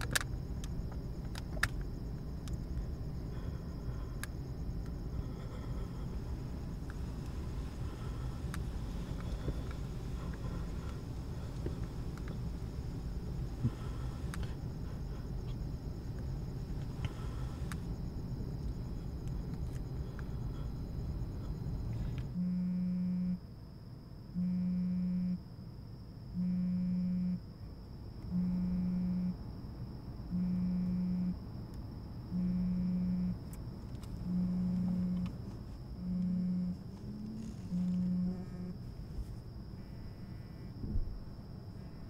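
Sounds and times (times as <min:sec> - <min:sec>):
low rumbling: 0:00.0 - 0:22.5
phone vibrating on fabric seat: 0:22.4 - 0:23.4, 0:24.3 - 0:25.4, 0:26.3 - 0:27.5, 0:28.3 - 0:29.4, 0:30.3 - 0:31.4, 0:32.3 - 0:41.1.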